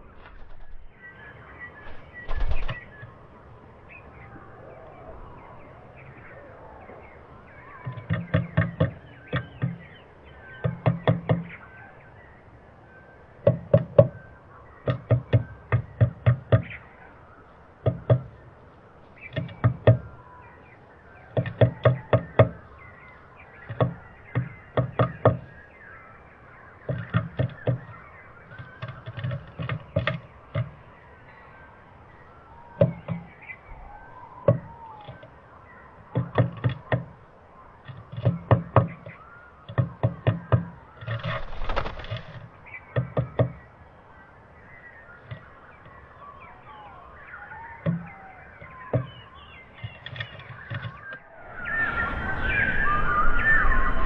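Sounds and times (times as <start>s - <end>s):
bird pecking on wooden box: 7.8s - 11.5s, 13.4s - 14.2s, 14.8s - 16.8s, 17.8s - 18.4s, 19.2s - 20.1s, 21.3s - 22.6s, 23.6s - 25.5s, 26.8s - 30.9s, 32.8s - 33.4s, 36.1s - 37.2s, 37.8s - 43.6s, 49.8s - 51.2s.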